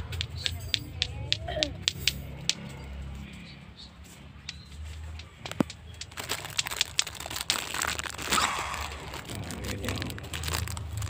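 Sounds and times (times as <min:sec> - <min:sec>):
plastic packaging rustling and crinkling: 0:05.5 - 0:11.0.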